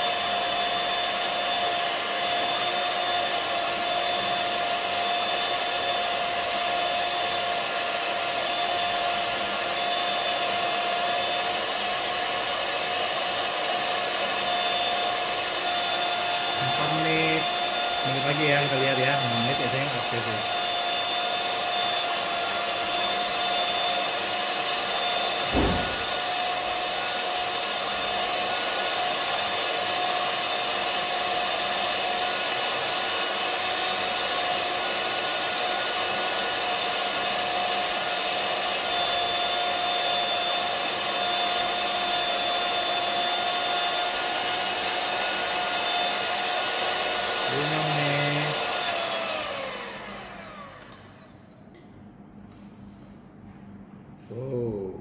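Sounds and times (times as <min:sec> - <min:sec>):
electric hand mixer whining: 0:00.0 - 0:51.7
thump: 0:25.4 - 0:26.3.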